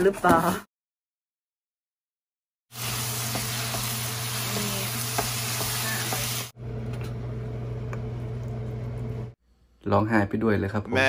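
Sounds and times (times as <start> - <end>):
food sizzling in frying pan: 2.7 - 6.6.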